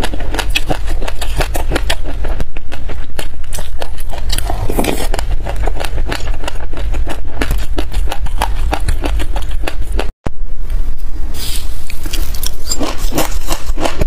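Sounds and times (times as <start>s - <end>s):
crunchy chewing: 0.0s - 10.1s, 11.6s - 14.0s
low rumble: 0.8s - 14.0s.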